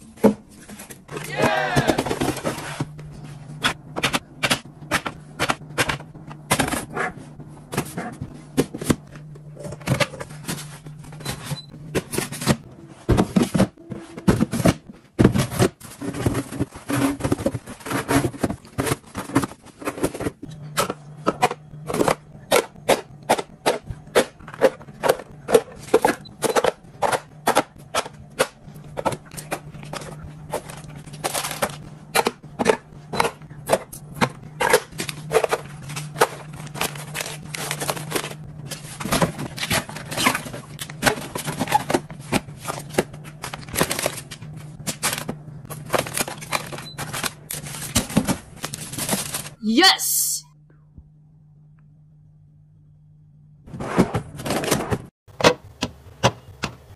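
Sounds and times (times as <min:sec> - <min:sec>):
items set down in refrigerator: 0:07.6 - 0:49.5.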